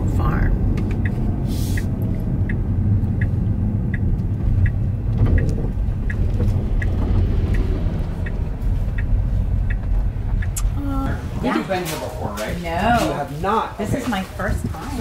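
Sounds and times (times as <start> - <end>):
turn signal ticking: 0.0 - 11.3
car engine and road rumble: 0.0 - 15.0.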